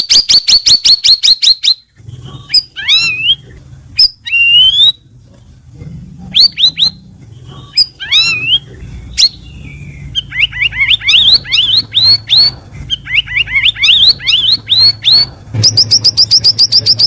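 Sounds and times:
bird singing whistled phrases: 0:04.0 - 0:05.0, 0:07.8 - 0:17.0.

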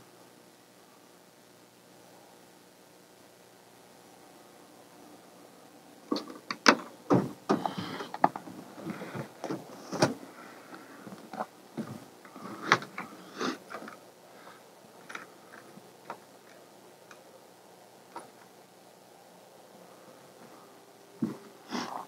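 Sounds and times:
handling clicks knocks and rustles: 0:06.1 - 0:13.1, 0:15.0 - 0:17.2.

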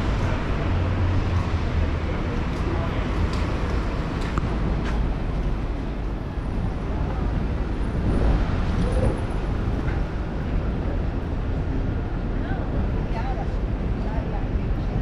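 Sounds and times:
city traffic rumble: 0:00.0 - 0:15.0
passers-by talking faintly: 0:00.0 - 0:15.0.

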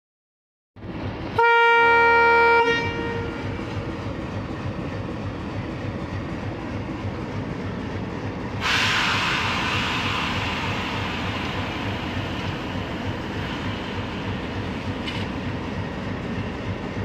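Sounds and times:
diesel locomotive engine chugging: 0:00.8 - 0:17.0
train horn blast: 0:01.4 - 0:03.6.

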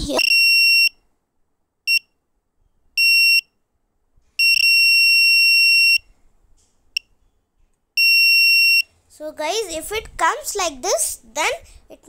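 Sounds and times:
high-pitched buzzer beeping: 0:04.4 - 0:06.0.

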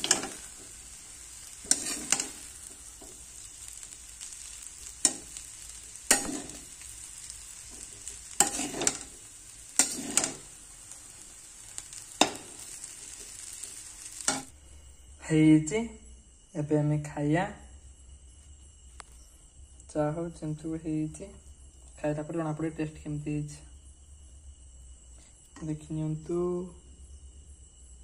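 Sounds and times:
metal spatula scraping a pan: 0:00.0 - 0:10.6
noodles sizzling in a pan: 0:00.0 - 0:14.6.

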